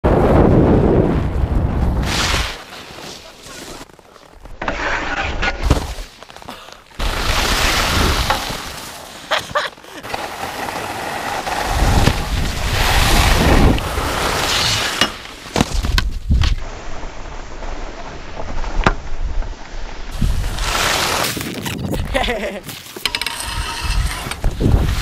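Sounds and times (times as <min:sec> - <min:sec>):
skis scraping over snow: 0:01.7 - 0:25.0
wind buffeting microphone: 0:23.8 - 0:25.0.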